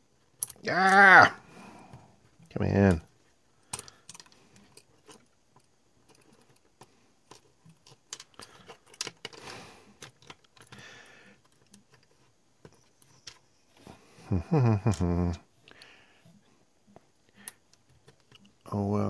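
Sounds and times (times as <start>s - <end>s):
fingers handling plastic parts: 2.2s - 13.5s, 14.9s - 18.8s.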